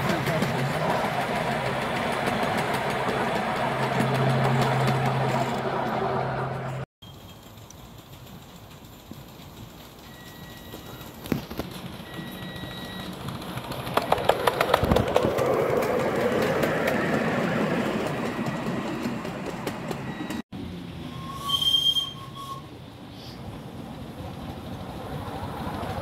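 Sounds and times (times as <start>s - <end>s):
wheels clicking over rail joints: 0.0s - 6.1s, 7.0s - 20.4s
rumble of miniature train: 0.0s - 26.0s
train whistle: 21.1s - 22.7s.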